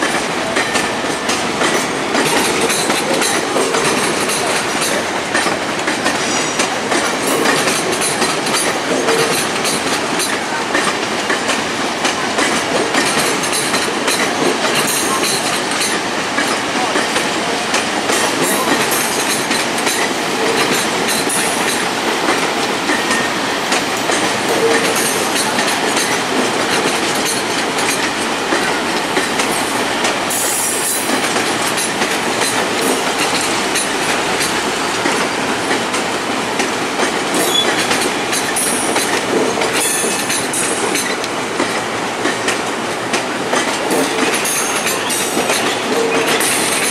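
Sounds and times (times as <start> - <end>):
train cars rumbling past: 0.0 - 46.9
wheels clattering over rails: 0.0 - 46.9
high wheel squeal: 37.4 - 37.9.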